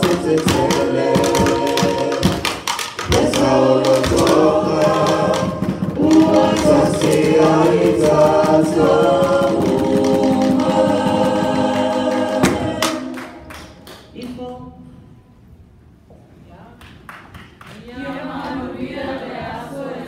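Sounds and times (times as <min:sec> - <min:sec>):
sharp knocks: 0:00.0 - 0:13.2
group singing a cappella: 0:00.0 - 0:13.8, 0:17.8 - 0:20.0.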